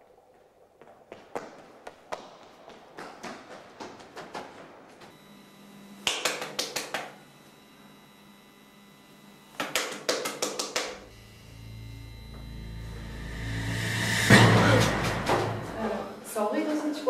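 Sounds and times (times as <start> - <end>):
faint steady hum: 5.0 - 17.0.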